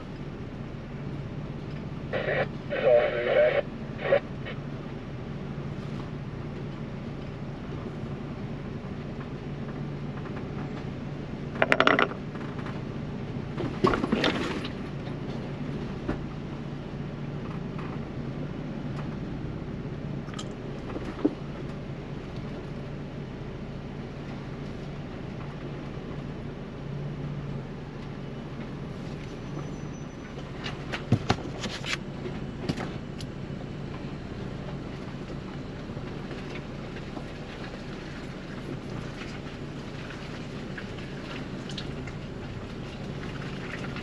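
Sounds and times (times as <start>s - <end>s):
vehicle engine hum: 0.0s - 44.0s
rattling and clunking: 9.2s - 12.9s.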